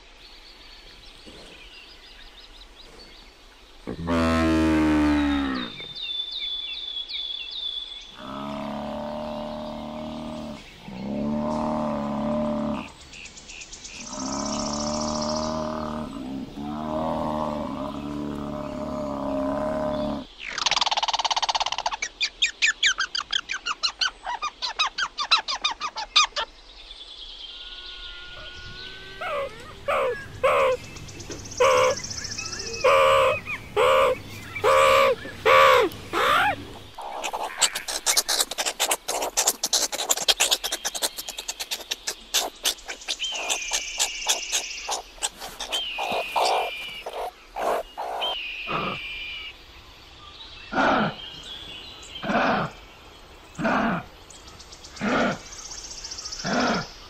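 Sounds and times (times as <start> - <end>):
low animal calls: 14.0 - 20.3, 27.5 - 30.9, 31.5 - 49.5
squirrel chattering call: 28.3 - 30.8, 31.6 - 49.0
high chirps and squeaks: 37.0 - 48.4.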